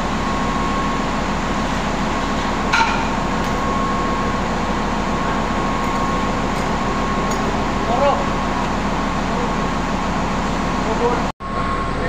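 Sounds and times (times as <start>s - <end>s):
industrial machinery drone: 0.0s - 12.0s
ringing metallic clank: 2.7s - 3.7s
faint whine: 10.9s - 12.0s.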